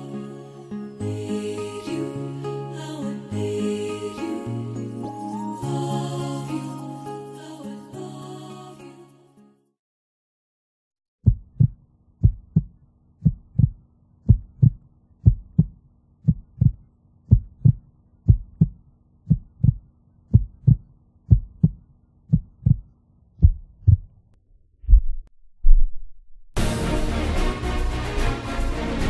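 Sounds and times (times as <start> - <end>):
heartbeat thumps: 11.2 - 24.2, 24.8 - 26.0.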